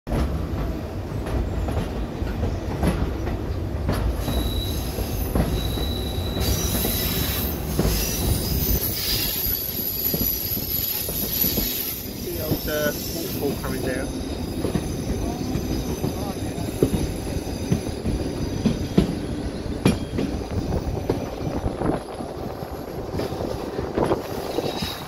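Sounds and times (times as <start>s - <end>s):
train wheels rumbling on rail: 0.1s - 25.0s
thin high wheel squeal: 4.2s - 19.0s, 24.2s - 25.0s.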